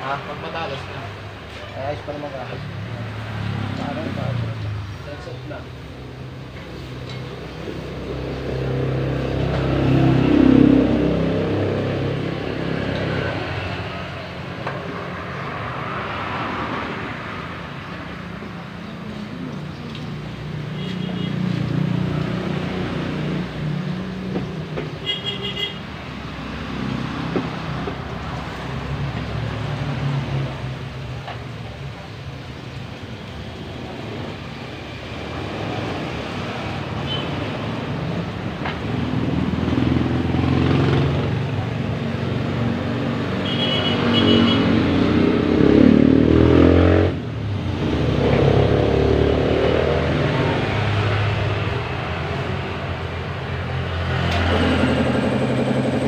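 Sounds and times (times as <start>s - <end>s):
traffic engine rumble: 0.0s - 56.0s
motorcycle engine revving: 8.0s - 13.8s, 42.5s - 53.0s
high beeping car horn: 25.0s - 25.8s, 43.4s - 44.8s.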